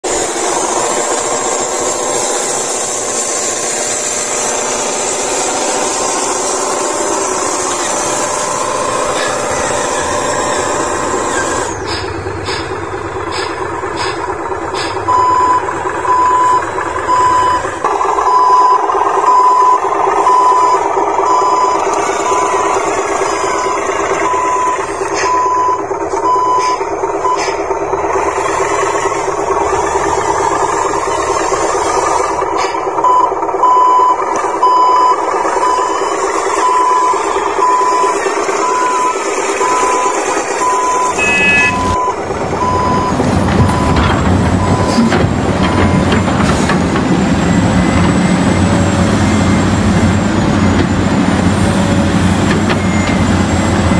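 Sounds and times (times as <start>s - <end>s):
engine-like drone: 0.0s - 53.9s
reversing beeper: 15.0s - 32.4s, 33.0s - 50.2s, 51.6s - 53.9s.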